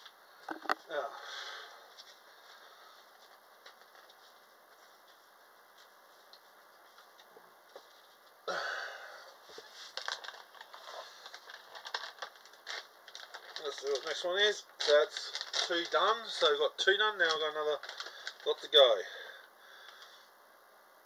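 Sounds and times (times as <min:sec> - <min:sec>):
packaging rustling: 0:09.5 - 0:18.9
packaging crinkling and clicking: 0:09.9 - 0:16.6, 0:17.2 - 0:18.6.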